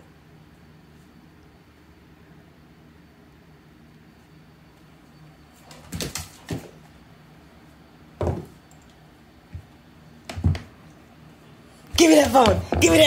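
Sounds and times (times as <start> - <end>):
knocks and thumps on hard floor: 8.2 - 8.5, 10.3 - 10.7, 12.0 - 13.0.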